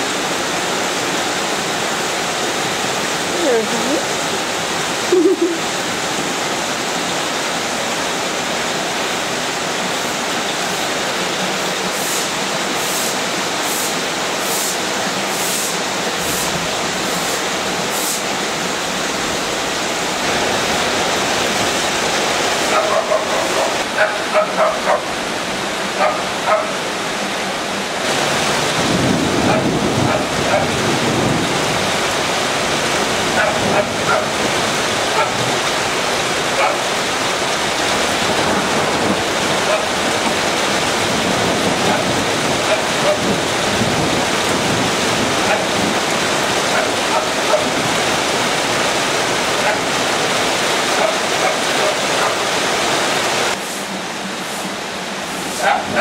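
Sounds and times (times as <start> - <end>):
heavy rain pouring: 0.0 - 56.0
runoff water rushing: 0.0 - 56.0
dog barking: 22.6 - 25.1, 25.9 - 26.8, 29.4 - 30.8, 33.3 - 34.4, 35.1 - 35.5, 36.5 - 36.9, 39.6 - 40.0, 41.8 - 43.3, 45.4 - 45.8, 46.7 - 47.8, 49.6 - 49.9, 50.9 - 52.5, 55.5 - 56.0.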